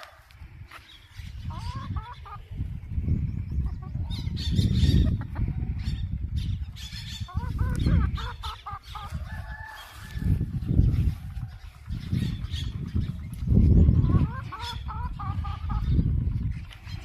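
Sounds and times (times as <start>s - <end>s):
low microphone rumble: 0.0s - 17.0s
rooster clucking: 1.5s - 2.4s, 3.6s - 6.2s, 6.8s - 16.2s.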